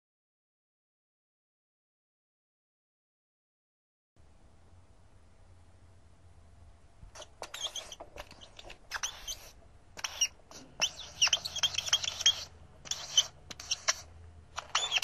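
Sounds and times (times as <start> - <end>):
marker squeaking on paper: 7.1 - 15.0.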